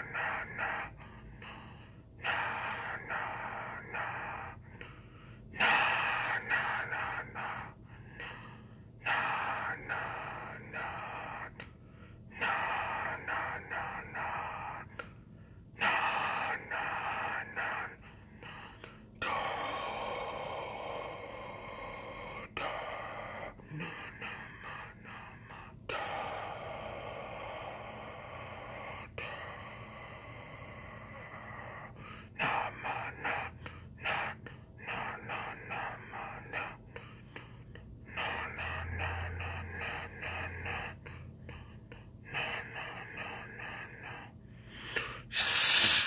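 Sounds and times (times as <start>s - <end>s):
man gasping and breathing hard: 39.6s - 46.0s.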